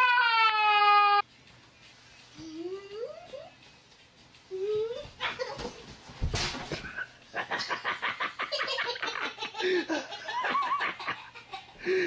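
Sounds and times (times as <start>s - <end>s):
person laughing heartily: 6.8s - 12.0s.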